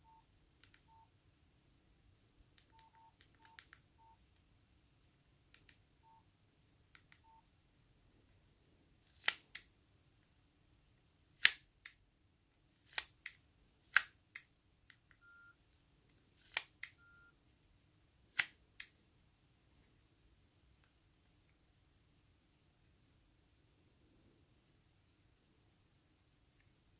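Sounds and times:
faint keypad beeps: 0.0s - 1.1s, 2.7s - 4.2s, 6.0s - 6.3s, 7.2s - 7.5s, 15.2s - 15.6s, 16.9s - 17.4s
slider phone snapping open and shut: 9.1s - 9.7s, 11.4s - 12.0s, 12.8s - 14.4s, 16.4s - 17.0s, 18.3s - 18.9s.

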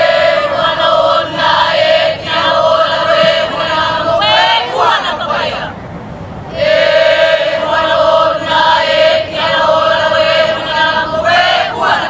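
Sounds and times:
group chanting in unison: 0.0s - 5.7s, 6.5s - 12.0s.

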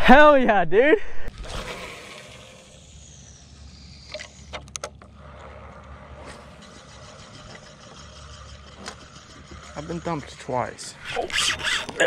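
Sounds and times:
fishing reel clicks: 1.3s - 10.2s.

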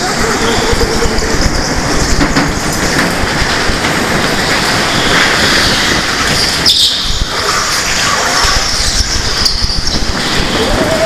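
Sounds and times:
go-kart engine rumbling rattle: 0.0s - 11.0s
high squeal: 4.8s - 11.0s.

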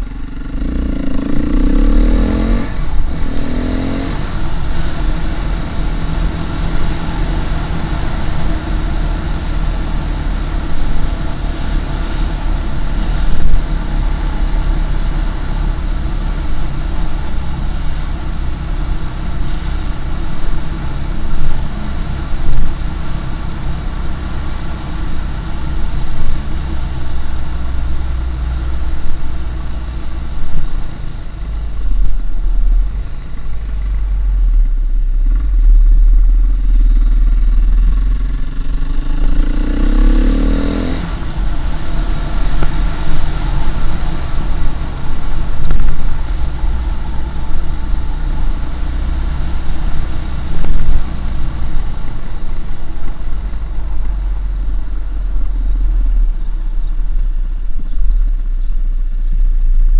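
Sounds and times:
motorcycle engine running: 0.0s - 59.9s.

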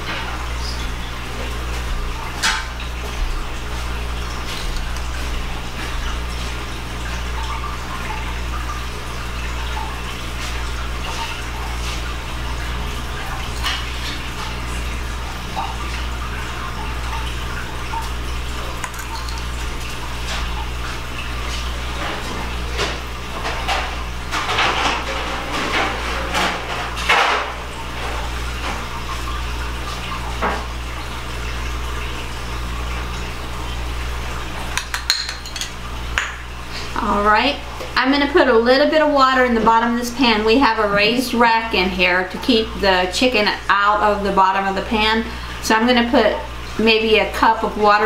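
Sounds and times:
low steady hum: 0.0s - 48.0s
glass bowl clinking on pan: 34.8s - 35.8s.

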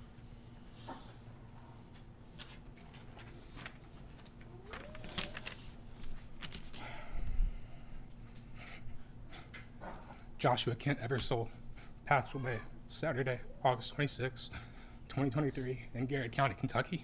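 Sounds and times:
small clicks and rustles: 1.8s - 6.8s.

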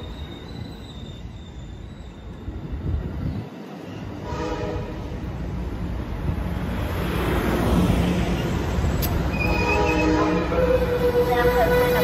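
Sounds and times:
faint wheel squeal: 0.0s - 2.8s
train wheels rumbling on rails: 0.0s - 12.0s
sharp click: 9.0s - 9.2s.

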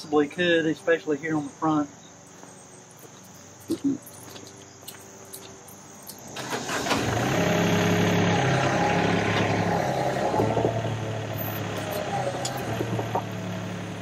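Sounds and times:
diesel engine starting and running: 5.3s - 14.0s
hydraulics working: 5.6s - 14.0s.

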